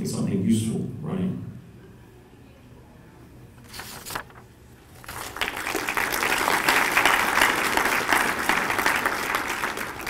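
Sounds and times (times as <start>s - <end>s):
audience applauding: 5.1s - 10.0s.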